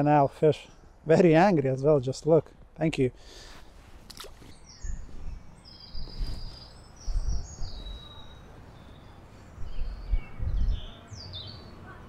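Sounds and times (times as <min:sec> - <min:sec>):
small birds singing: 0:04.2 - 0:12.0.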